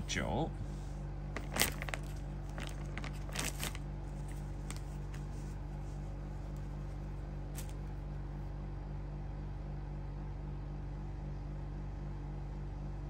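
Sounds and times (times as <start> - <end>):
low hum: 0.0 - 9.9
faint clicks and rustles: 1.4 - 8.0.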